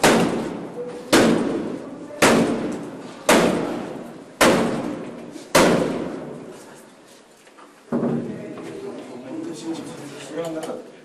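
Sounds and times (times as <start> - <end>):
heavy blows banging on door: 0.0 - 6.4.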